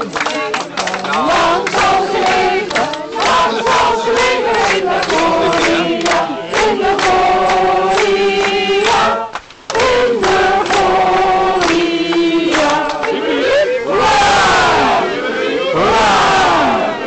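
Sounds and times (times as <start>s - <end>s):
group singing together: 0.0s - 17.0s.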